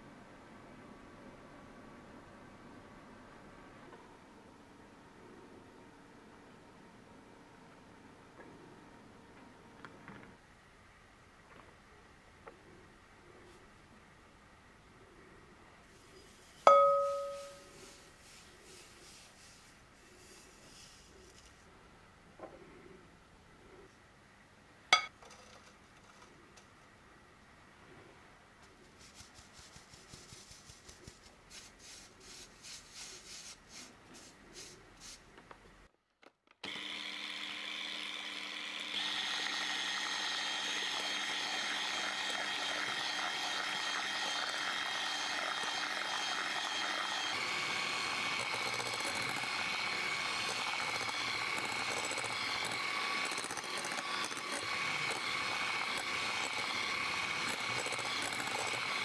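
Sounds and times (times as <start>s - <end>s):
electric hand mixer whirring: 36.6s - 59.0s.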